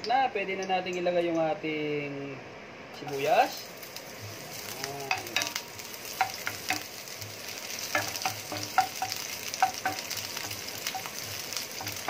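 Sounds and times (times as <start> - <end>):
onion sizzling in hot oil: 3.0 - 12.0
wooden spatula knocking pan: 5.0 - 12.0.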